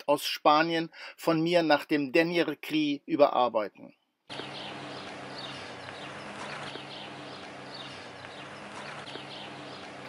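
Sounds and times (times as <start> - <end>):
small birds chirping: 4.3 - 10.0
steady low hum: 4.3 - 10.0.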